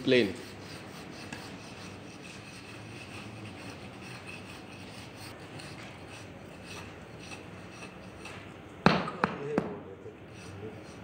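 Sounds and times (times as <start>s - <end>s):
hand planer scraping sand: 0.0s - 8.4s.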